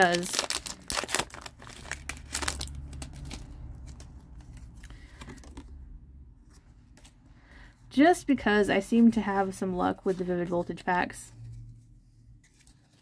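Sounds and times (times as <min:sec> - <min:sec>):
foil pack crinkling and tearing: 0:00.0 - 0:03.6.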